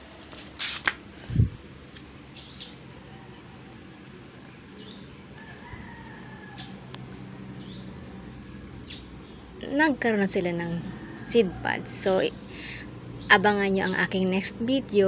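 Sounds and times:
rooster crowing faintly: 5.4s - 7.2s.

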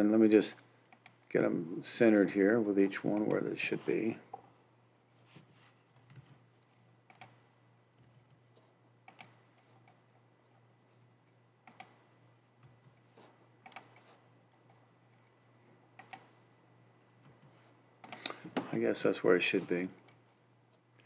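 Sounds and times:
low electrical hum: 0.0s - 21.0s
computer mouse clicks: 0.9s - 1.2s, 3.1s - 3.4s, 7.1s - 7.4s, 9.0s - 10.0s, 11.6s - 12.0s, 13.6s - 14.2s, 16.0s - 16.3s, 17.3s - 18.4s.

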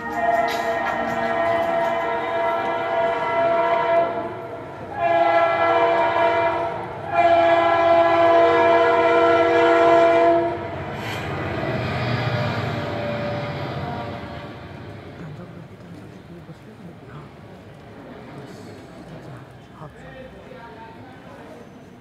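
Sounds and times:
train horn blasts: 0.0s - 10.8s.

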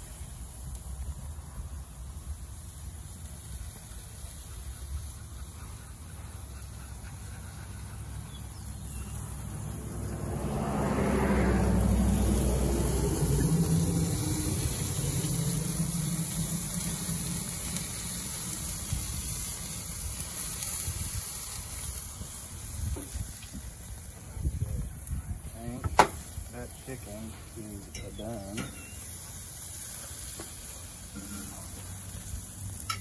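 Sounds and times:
vehicle driving past: 7.0s - 32.9s.

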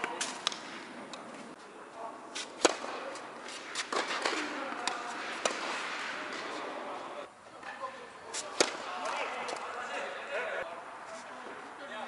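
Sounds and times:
tennis racket hits: 2.4s - 6.8s, 8.3s - 9.7s
tennis ball bounces: 2.6s - 6.7s, 8.4s - 9.7s.

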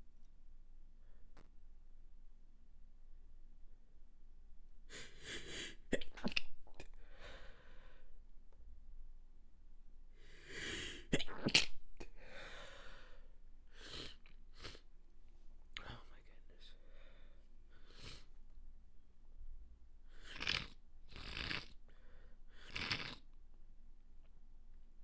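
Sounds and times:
breathing in and out: 4.9s - 5.9s, 6.9s - 8.2s, 10.1s - 11.1s, 12.0s - 14.9s, 16.7s - 18.4s, 20.1s - 23.2s.

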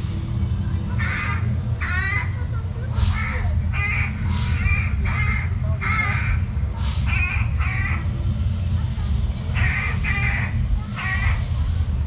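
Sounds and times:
harsh cawing bird calls: 0.9s - 8.2s, 9.4s - 11.7s.

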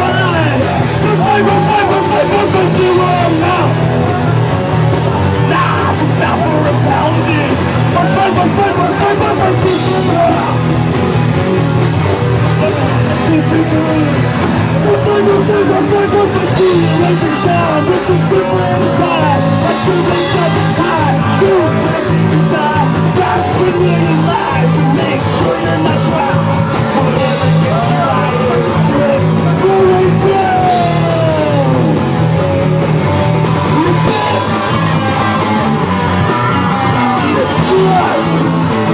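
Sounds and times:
punk rock band playing: 0.0s - 38.9s
person singing: 14.8s - 32.0s.

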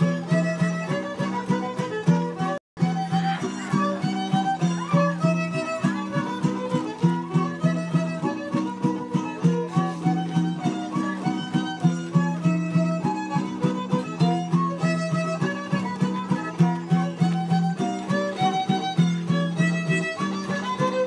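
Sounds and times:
strummed strings: 0.0s - 21.0s
violin melody: 0.0s - 21.0s.

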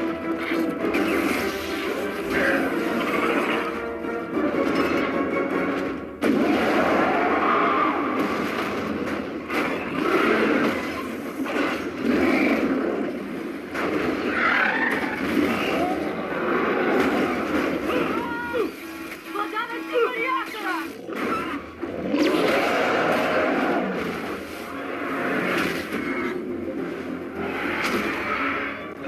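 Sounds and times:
film score music: 0.0s - 29.0s
crashing and rumbling effects: 4.4s - 18.2s.

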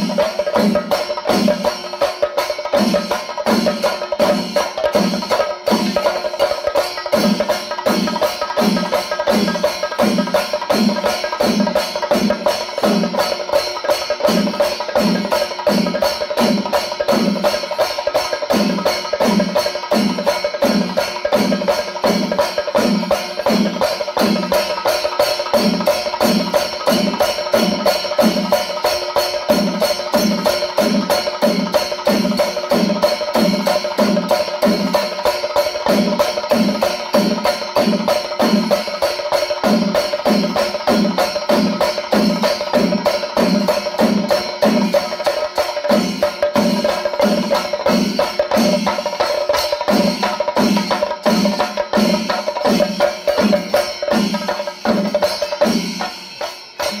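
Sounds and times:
brass cymbals clashing: 0.0s - 57.0s
drums struck with sticks: 0.0s - 57.0s.

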